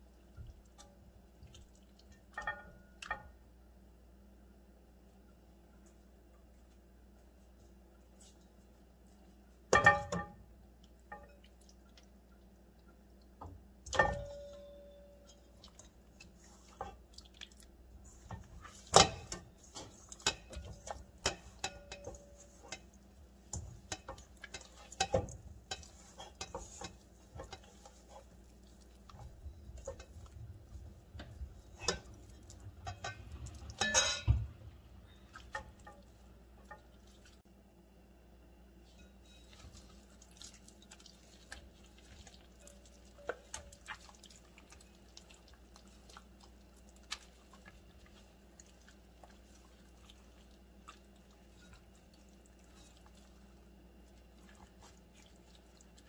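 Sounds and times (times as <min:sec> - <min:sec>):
metal utensils clinking on bowls: 0:13.9 - 0:15.6, 0:18.3 - 0:22.9, 0:23.5 - 0:28.3, 0:29.1 - 0:30.4, 0:31.2 - 0:34.5.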